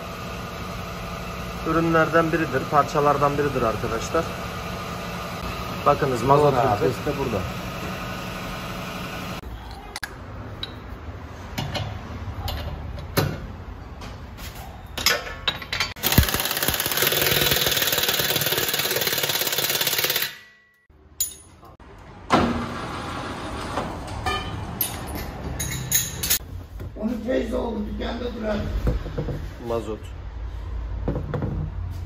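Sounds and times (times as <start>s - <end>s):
tools clicking on metal: 24.3s - 26.4s.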